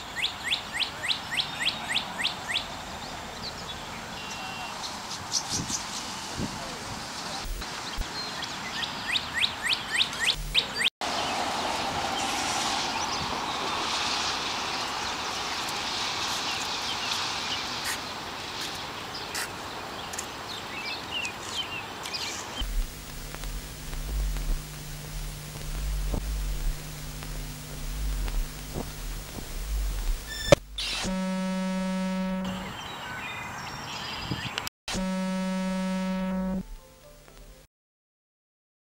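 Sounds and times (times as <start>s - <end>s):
steady low hum: 10.4s - 10.7s, 22.6s - 32.7s, 34.9s - 36.8s
steady hiss: 22.6s - 31.1s.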